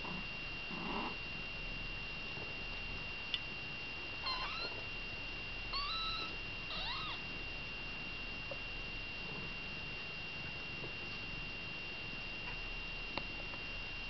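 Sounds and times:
kittens mewing: 4.2s - 4.8s, 5.7s - 7.2s.

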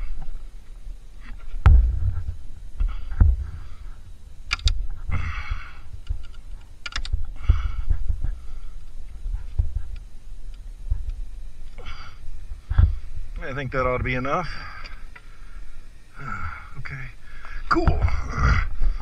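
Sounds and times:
low thumps: 1.2s - 15.4s.

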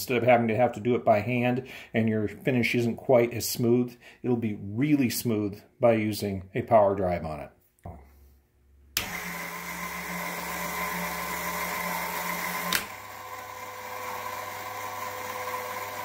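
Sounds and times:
electric motor whirring: 9.0s - 16.0s.

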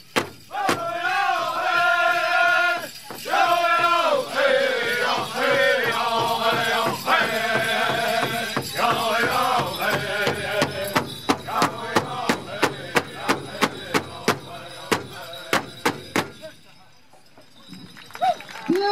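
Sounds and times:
group singing in unison: 0.5s - 16.4s
large drum beating: 5.0s - 16.4s.

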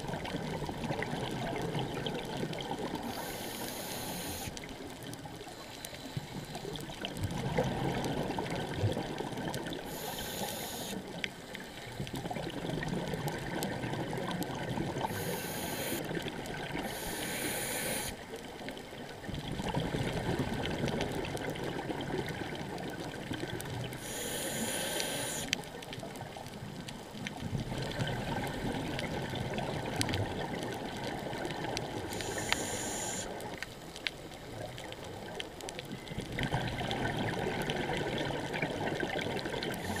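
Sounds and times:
regulator inhalation hiss: 3.0s - 4.6s, 9.9s - 11.0s, 15.1s - 16.1s, 16.8s - 18.2s, 24.0s - 25.5s, 32.1s - 33.4s, 39.8s - 40.0s.

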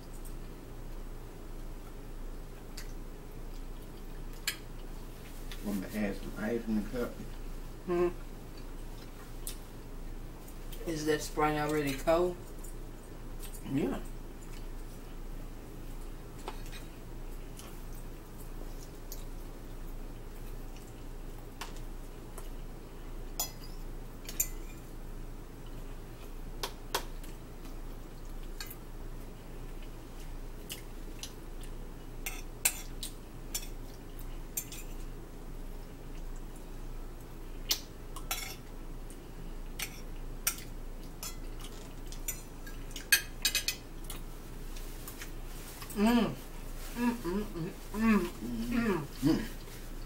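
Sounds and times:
steady low hum: 0.0s - 50.0s
forks clinking on plates: 38.2s - 38.6s.

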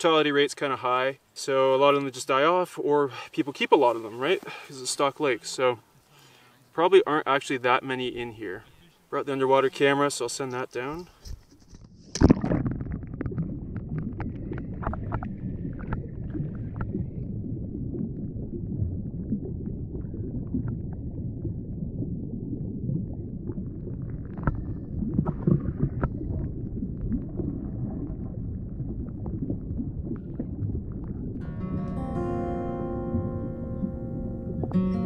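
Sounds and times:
low muffled rumbling: 12.3s - 31.8s.

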